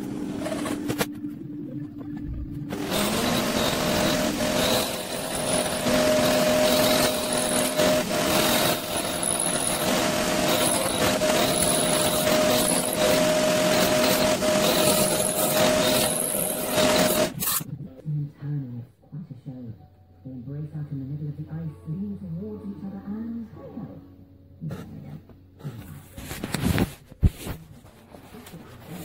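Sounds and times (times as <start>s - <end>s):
drill motor hum: 2.7s - 17.6s
metal cutting noise: 2.7s - 17.7s
high squeal from cutter: 2.8s - 17.6s.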